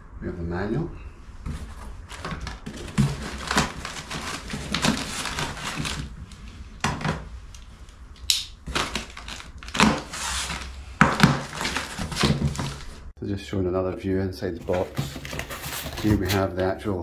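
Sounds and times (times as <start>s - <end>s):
plastic foam sheet rustling: 1.4s - 7.3s, 8.6s - 13.1s, 14.5s - 16.7s.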